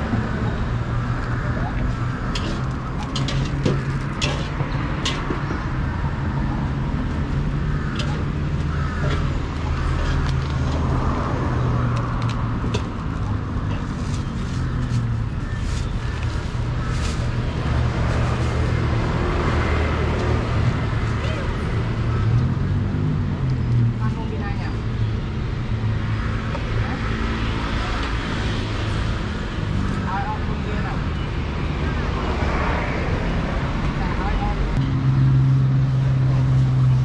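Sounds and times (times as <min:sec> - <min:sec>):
road traffic rumble: 0:00.0 - 0:37.0.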